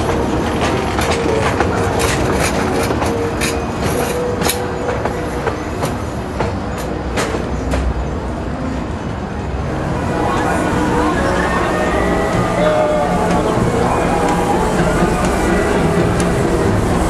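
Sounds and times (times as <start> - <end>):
train wheels clicking over rail joints: 0.0 - 8.3, 12.3 - 17.0.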